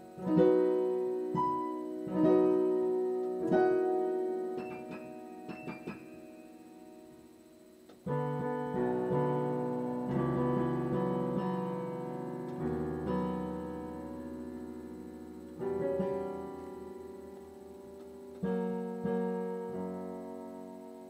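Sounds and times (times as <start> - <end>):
piano chords: 0.0 - 21.0.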